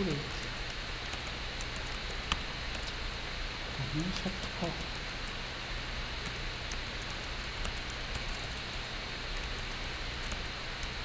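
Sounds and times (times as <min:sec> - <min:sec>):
microphone hiss and hum: 0:00.0 - 0:11.0.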